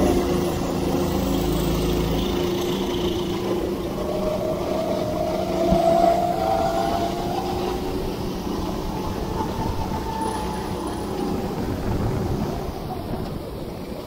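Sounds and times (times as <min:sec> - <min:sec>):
go-kart engine running: 0:00.0 - 0:14.0
wind on microphone: 0:03.4 - 0:14.0.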